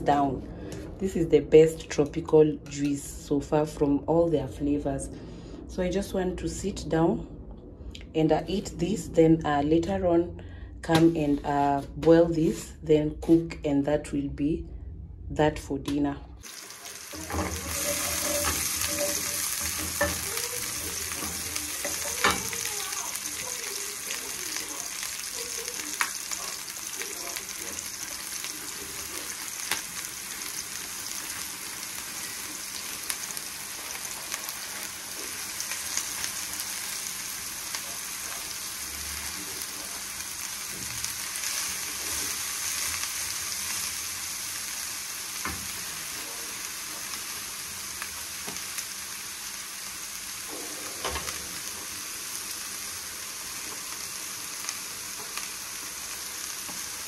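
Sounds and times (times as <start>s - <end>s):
onions sizzling in oil: 16.4s - 57.0s.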